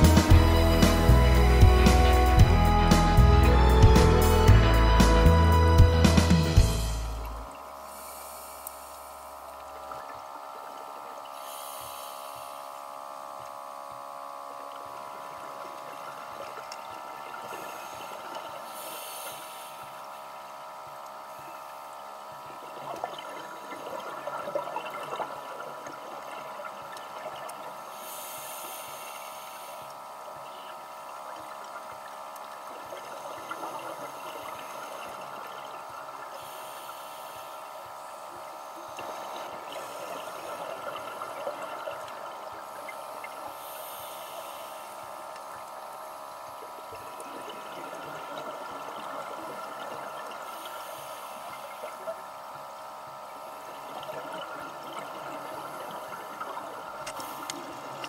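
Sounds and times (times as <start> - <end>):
diver breathing through regulator: 7.9 - 9.4, 11.4 - 12.8, 17.6 - 20.1, 27.9 - 30.0, 36.4 - 37.9, 42.9 - 45.2, 50.4 - 52.0.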